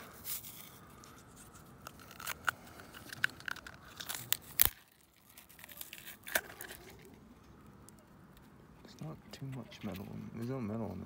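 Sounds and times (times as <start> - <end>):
oil filter being torn apart: 0.2 - 7.1
sharp cracks and crinkling tears: 0.6 - 8.6.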